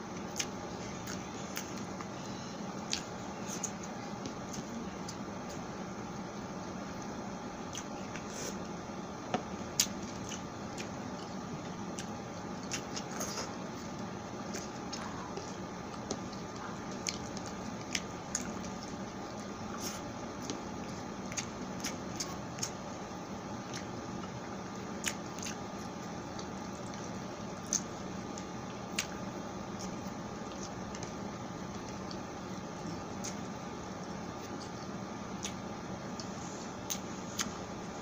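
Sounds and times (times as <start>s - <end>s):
wet chewing and mouth smacks: 9.7s - 22.8s, 25.0s - 32.2s.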